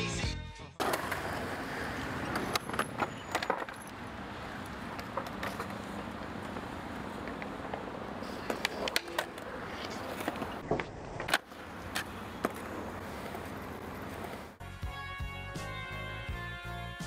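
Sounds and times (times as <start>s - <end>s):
skateboard clacks popping and landing: 0.8s - 4.0s, 4.6s - 14.5s
skateboard grinding on coping: 0.8s - 14.6s
skateboard wheels rolling on concrete: 0.8s - 17.0s.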